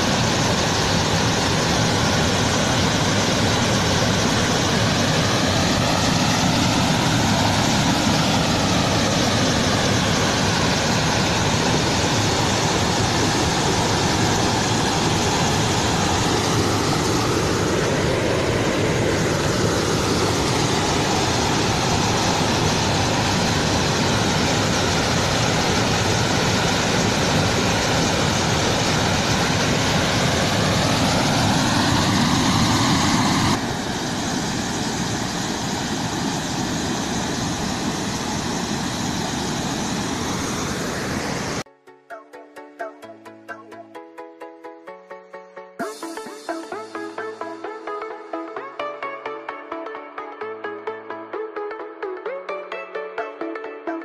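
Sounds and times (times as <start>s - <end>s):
water roaring over spillway: 0.0s - 41.7s.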